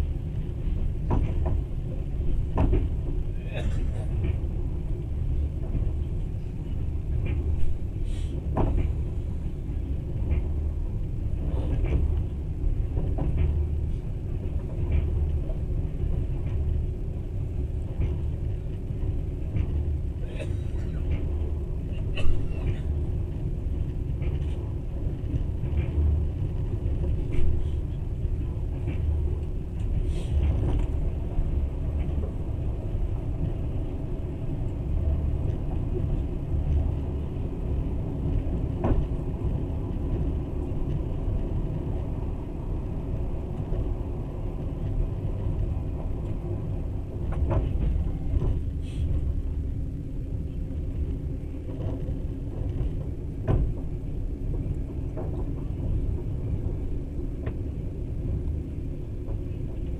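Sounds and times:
train wheels rumbling on track: 0.0 - 59.9.

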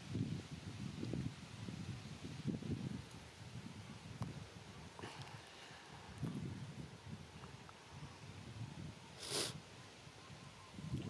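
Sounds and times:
low wind rumble on microphone: 0.0 - 11.0.

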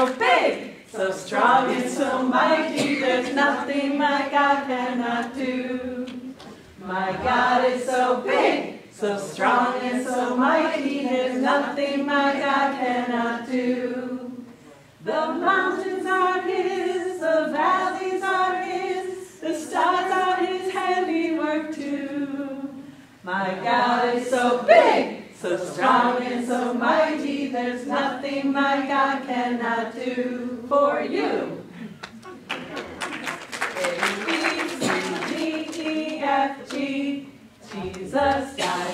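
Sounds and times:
women singing together: 0.0 - 31.9, 33.8 - 38.9.

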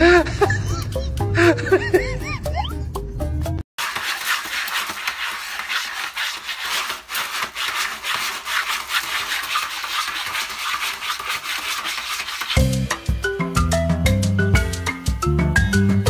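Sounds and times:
cat scratching litter pellets: 3.8 - 12.6.

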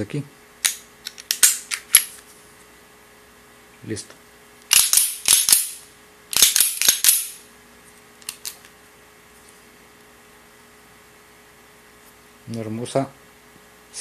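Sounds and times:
pistol slide clacking: 4.7 - 7.4.

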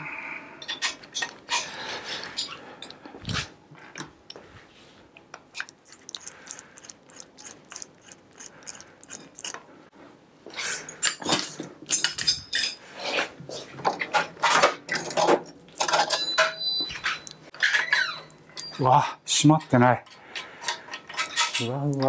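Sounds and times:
metal tools clinking and clattering: 10.9 - 12.8, 14.0 - 22.0.

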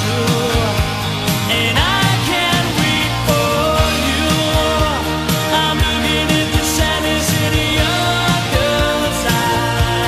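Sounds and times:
pop-rock band music: 0.0 - 10.0.

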